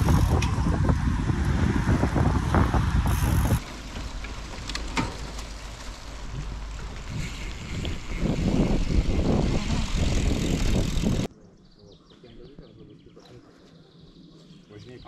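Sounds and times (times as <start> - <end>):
wind buffeting microphone: 0.0 - 4.6, 6.3 - 11.3.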